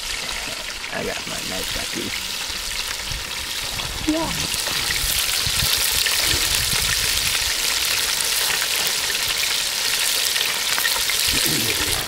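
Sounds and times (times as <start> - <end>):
meat sizzling and crackling: 0.0 - 12.0.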